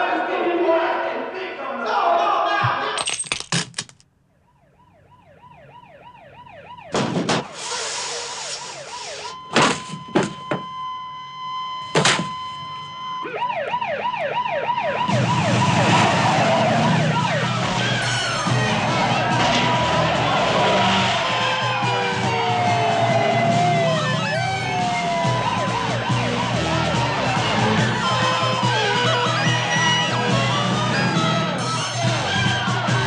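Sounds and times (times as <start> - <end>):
police siren wailing: 4.5 - 33.0
sharp bangs: 6.9 - 7.6, 15.0 - 22.9
loud noisy din: 14.9 - 33.0.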